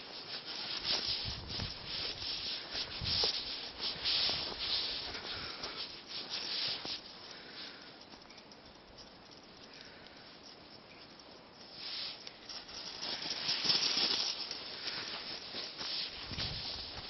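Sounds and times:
footsteps crunching through snow: 0.0s - 7.1s, 11.7s - 17.0s.

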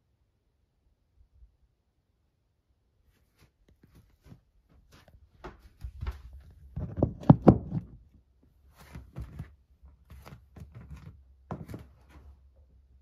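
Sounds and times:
knocks and thuds: 6.8s - 8.0s.

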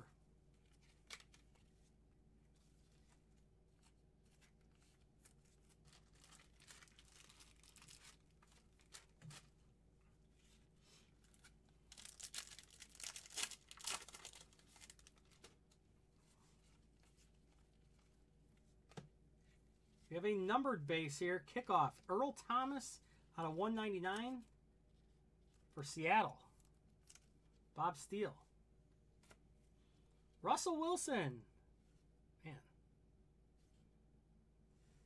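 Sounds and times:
wrapper crinkling and tearing: 0.6s - 1.6s, 5.2s - 9.6s, 11.2s - 15.7s.

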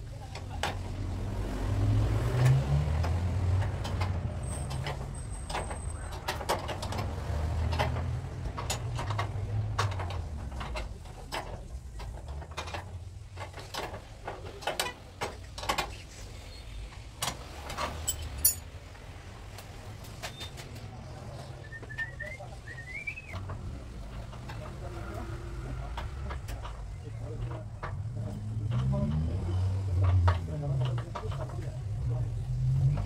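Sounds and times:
hand tools clicking on metal: 18.0s - 18.6s.

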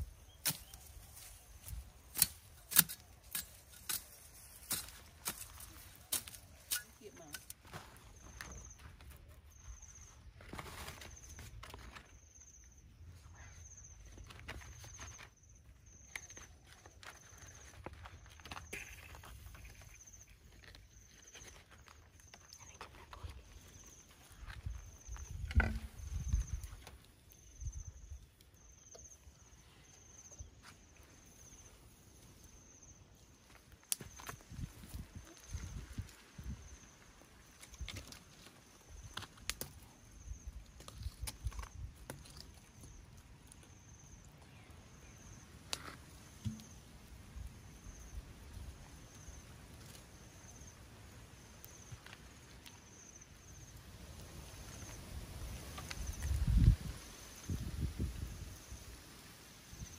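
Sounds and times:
insect chirping in buzzing pulses: 17.1s - 38.0s
bamboo skewer knocking and rustling: 25.3s - 26.2s, 45.7s - 46.8s.

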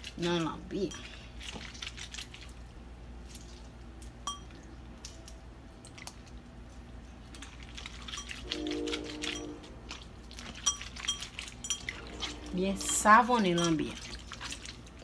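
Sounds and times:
hands squishing wet meat: 0.0s - 15.0s
low hum: 2.8s - 15.0s
steady tone: 8.4s - 10.0s, 11.6s - 13.7s.

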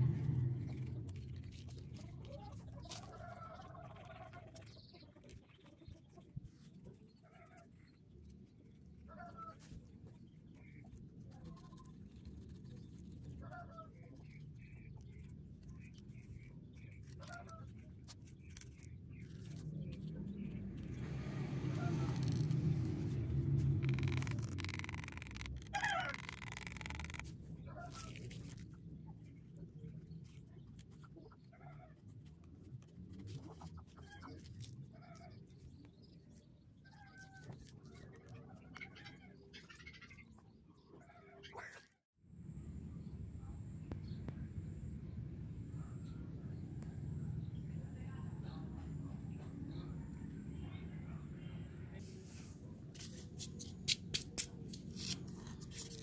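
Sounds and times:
low rumble: 0.0s - 3.3s, 19.2s - 26.5s.

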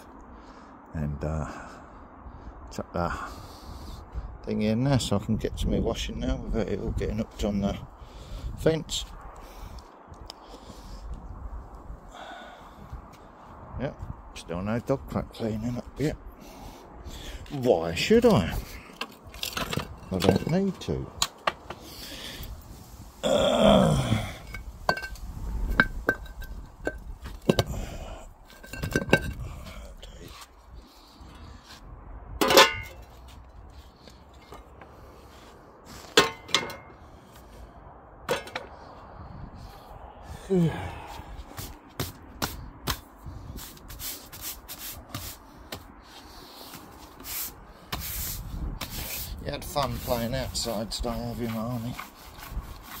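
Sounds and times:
low voice-like sound: 23.2s - 24.4s, 40.2s - 41.4s
push broom sweeping concrete: 43.6s - 53.0s.

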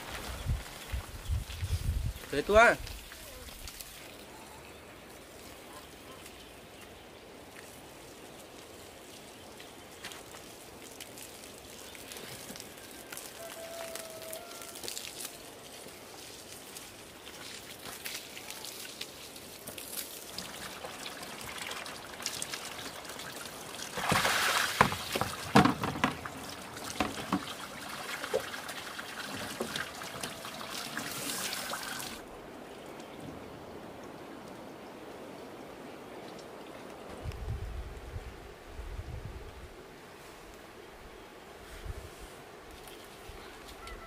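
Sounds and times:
water trickling and pouring: 8.7s - 33.2s.

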